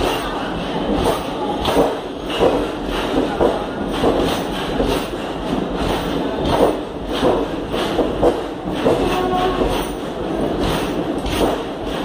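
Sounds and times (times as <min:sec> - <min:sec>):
moving train rumble: 0:00.0 - 0:12.0
train wheels clattering over rail joints: 0:00.0 - 0:12.0.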